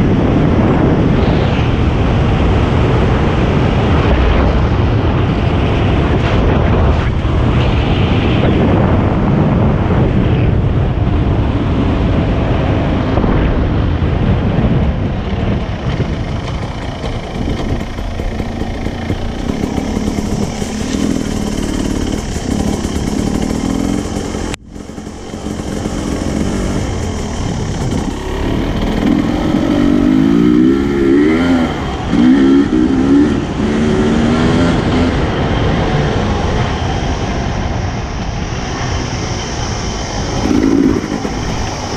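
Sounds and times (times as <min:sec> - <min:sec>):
heavy wind rush: 0:00.0 - 0:41.9
dirt bike engine running: 0:13.6 - 0:37.2, 0:38.6 - 0:41.9.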